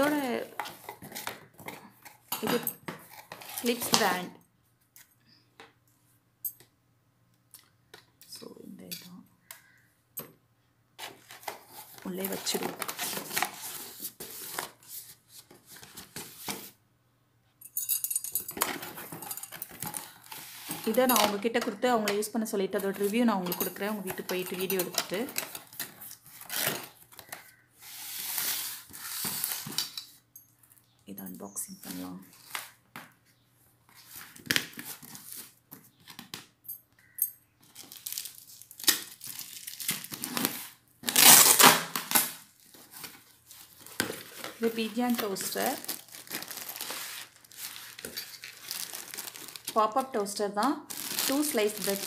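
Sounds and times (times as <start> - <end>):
plastic and cardboard crinkling: 0.0 - 4.2, 11.0 - 16.8, 18.5 - 27.6, 37.0 - 52.0
packing tape tearing off box: 2.5 - 4.2, 11.0 - 16.7, 24.9 - 30.0, 37.8 - 43.2, 43.8 - 49.8, 50.9 - 52.0.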